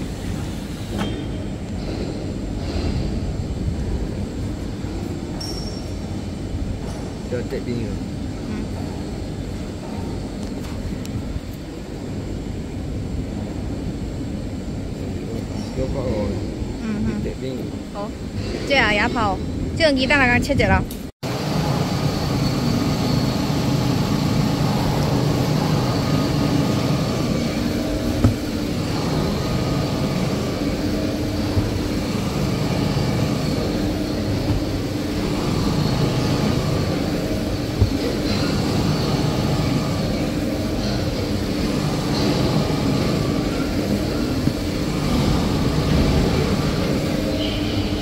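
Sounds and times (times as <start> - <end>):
factory machinery drone: 0.0 - 48.0.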